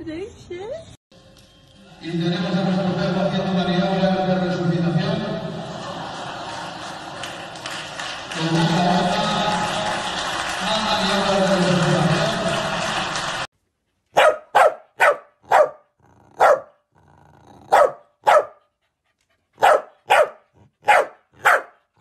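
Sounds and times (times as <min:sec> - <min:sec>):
dog barking sharply: 0:14.1 - 0:15.8, 0:16.4 - 0:16.7, 0:17.7 - 0:18.6, 0:19.6 - 0:21.8.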